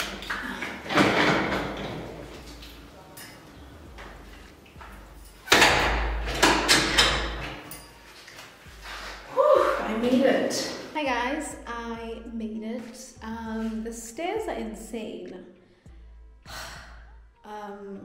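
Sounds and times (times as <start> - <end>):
door knocks and rattles: 0.8 - 2.2
glass door bumping shut: 5.4 - 7.6.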